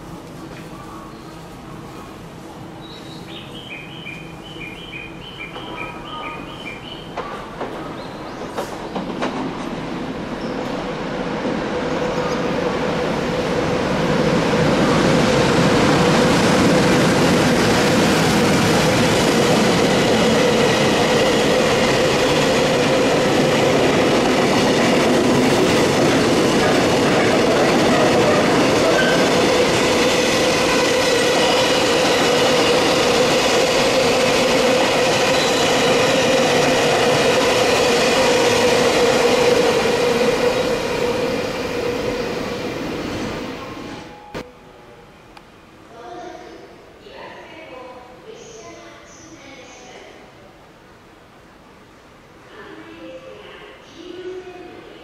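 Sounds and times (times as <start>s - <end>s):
train wheels rumbling on rails: 3.3s - 44.1s.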